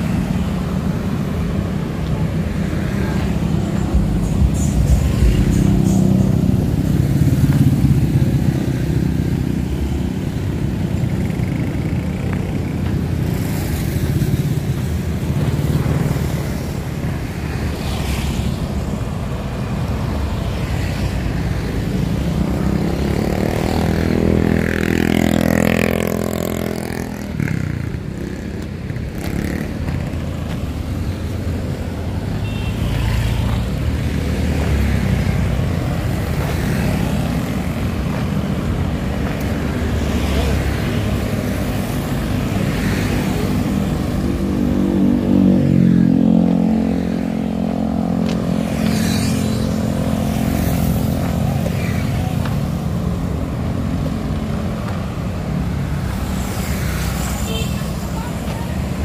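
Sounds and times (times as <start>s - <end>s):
motorcycles and cars passing: 0.0s - 59.0s.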